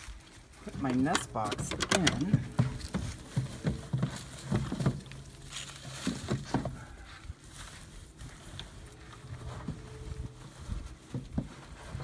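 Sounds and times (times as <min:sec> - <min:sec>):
wood knocking and scraping on wood: 0:00.9 - 0:06.9, 0:11.0 - 0:12.0.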